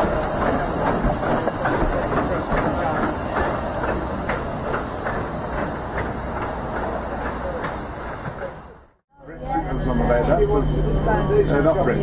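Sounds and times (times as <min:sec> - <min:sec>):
steam hissing: 0:00.0 - 0:09.0.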